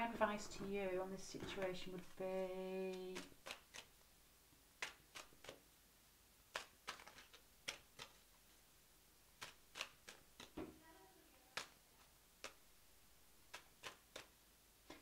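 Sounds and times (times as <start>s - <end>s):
cards flicking and tapping: 1.2s - 3.9s, 4.8s - 5.7s, 6.5s - 8.4s, 9.3s - 10.8s, 11.5s - 12.7s, 13.4s - 15.0s.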